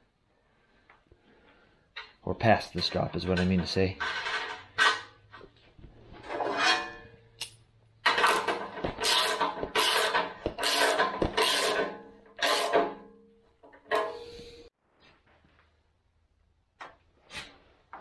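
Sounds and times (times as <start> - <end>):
rasping metal-on-metal scrapes: 6.2 - 7.3, 8.0 - 13.0.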